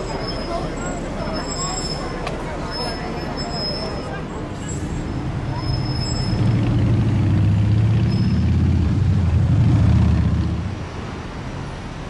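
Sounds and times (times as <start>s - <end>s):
diesel truck passing: 4.4s - 11.6s.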